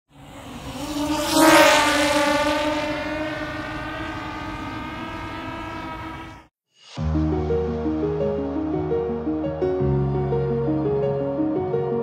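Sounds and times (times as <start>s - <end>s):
propeller aircraft flying past: 0.1s - 6.5s.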